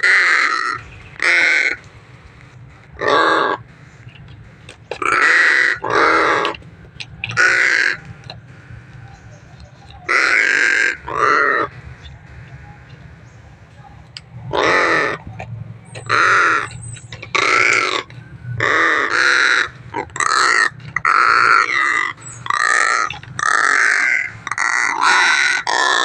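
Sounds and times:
crows cawing: 0.0 - 1.9, 2.9 - 13.4, 14.5 - 26.0.

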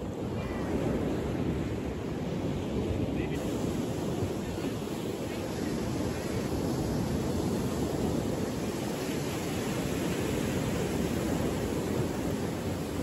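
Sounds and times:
small waves breaking: 0.0 - 13.0
wind on microphone: 0.0 - 13.0.

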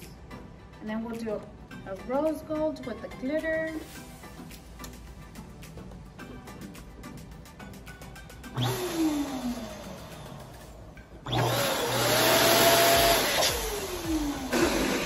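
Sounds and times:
electric balloon pump running: 8.5 - 10.5, 11.2 - 15.0.

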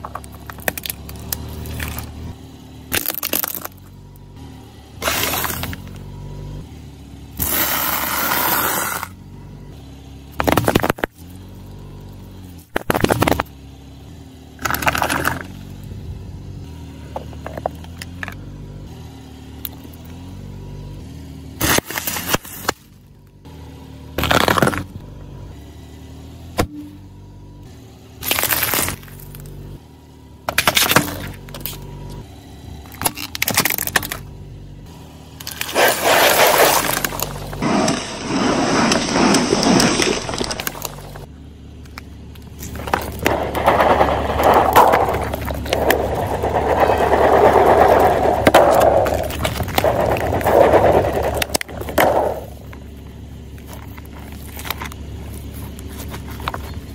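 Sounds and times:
car rumble: 0.0 - 56.9
tyre crushing plastic objects: 2.9 - 3.8, 10.4 - 11.2, 14.6 - 15.5, 24.2 - 24.9, 28.2 - 29.4, 30.5 - 31.8, 32.8 - 34.3, 35.4 - 41.3, 42.5 - 52.8.

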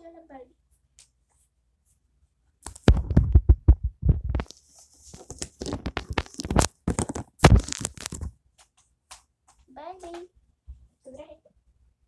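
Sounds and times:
phone handling bumps and rubbing: 2.8 - 4.5, 5.2 - 8.4.

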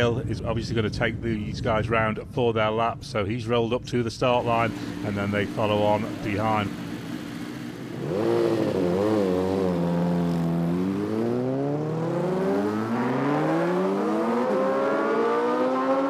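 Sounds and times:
motorcycle engine revving: 4.4 - 16.0.

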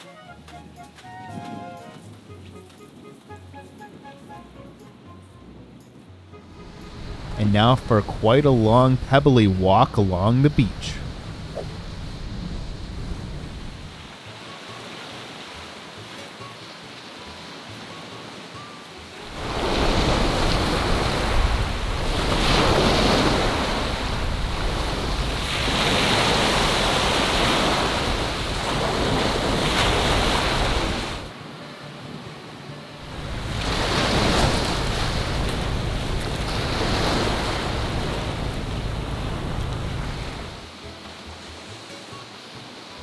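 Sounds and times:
wind on microphone: 11.0 - 14.1, 19.3 - 31.3
waves washing up pebbly beach: 11.1 - 31.4, 33.0 - 43.0.

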